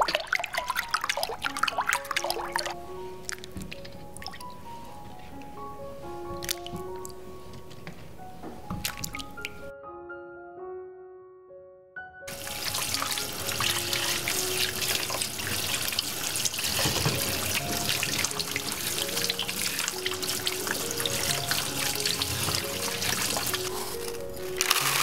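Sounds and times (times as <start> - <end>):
tap water running and splashing: 0.0 - 2.8, 12.3 - 25.0
hands rubbing cucumbers: 12.3 - 25.0
music of held notes: 12.3 - 25.0.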